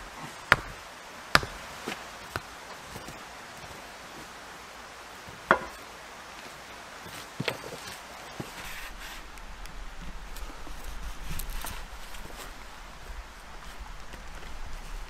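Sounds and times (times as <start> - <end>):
hammer striking wooden stakes: 1.4 - 1.6, 5.5 - 5.8.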